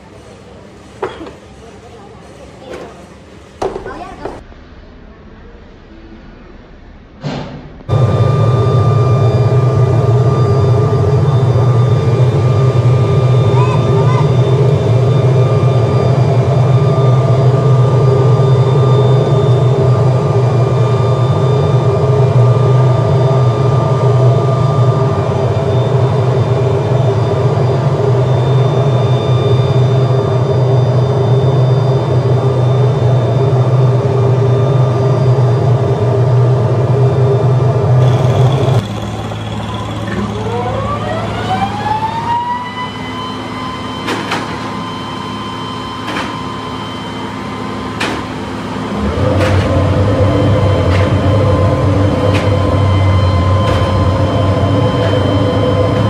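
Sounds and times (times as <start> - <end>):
foundry machinery drone: 0.0 - 56.0
electric motor whine: 7.9 - 44.0, 48.6 - 56.0.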